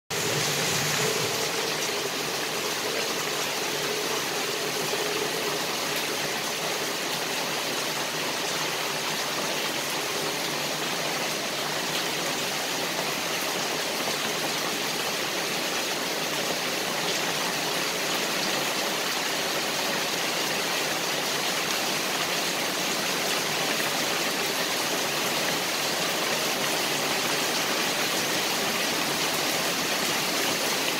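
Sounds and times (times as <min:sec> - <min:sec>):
rain on grass and leaves: 0:00.1 - 0:30.9.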